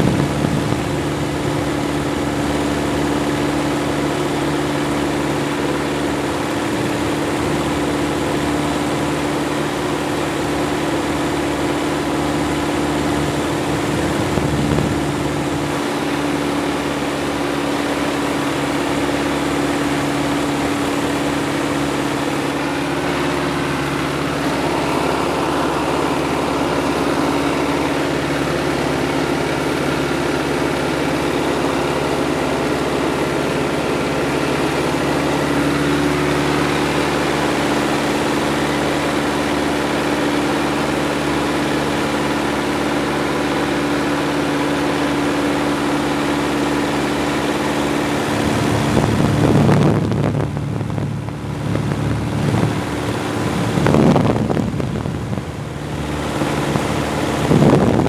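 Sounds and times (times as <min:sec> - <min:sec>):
light aircraft engine droning: 0:00.0 - 0:58.0
wind rushing: 0:48.0 - 0:58.0.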